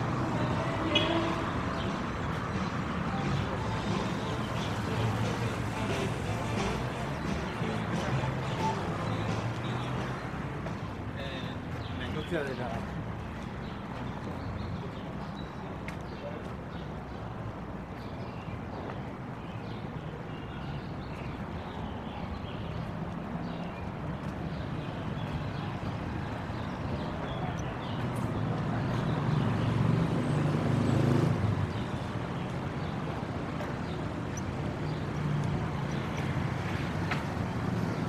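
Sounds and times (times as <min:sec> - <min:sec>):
vehicle engine passing: 0:28.4 - 0:31.9.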